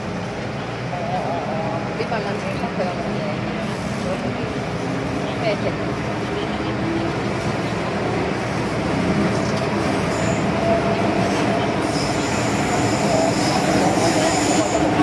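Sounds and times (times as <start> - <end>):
train wheels rumbling on rail: 0.0 - 15.0
high wheel squeal: 9.8 - 15.0.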